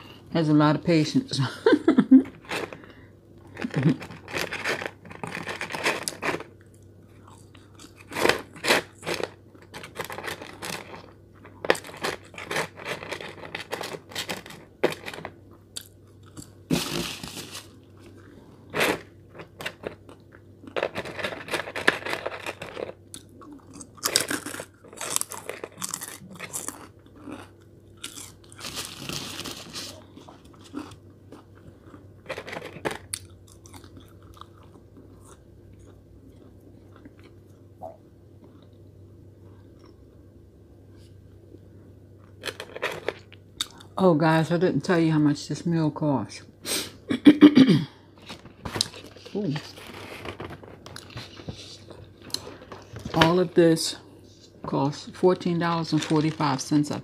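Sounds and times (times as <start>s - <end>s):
person chewing crunchy fries: 2.3s - 40.2s, 42.1s - 44.0s, 48.2s - 53.1s.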